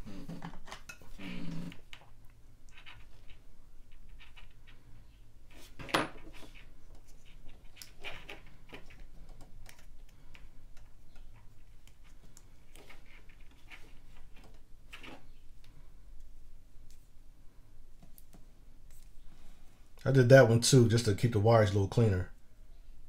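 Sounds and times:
hands handling small wires: 0:01.8 - 0:17.2.

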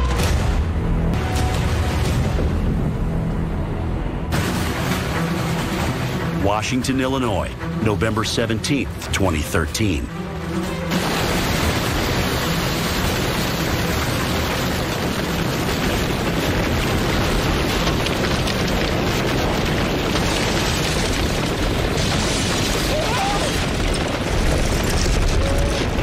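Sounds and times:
roar of wind and flying debris: 0:10.4 - 0:26.0.

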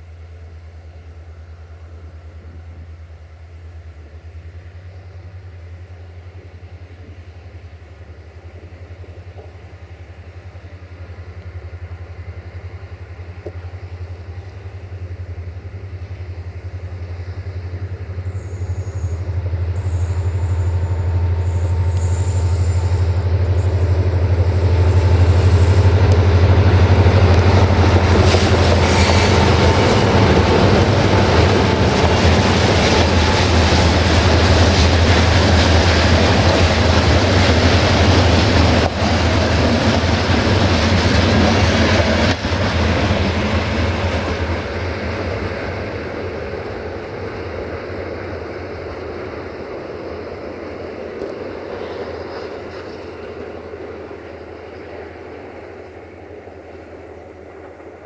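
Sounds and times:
locomotive engine drone: 0:00.0 - 0:58.0
wheel squeal: 0:18.3 - 0:25.9
train wheels clattering: 0:19.8 - 0:48.2.

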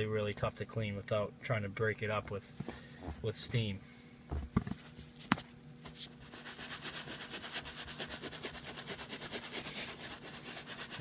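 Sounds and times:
brush scrubbing leather seat: 0:05.9 - 0:11.0.

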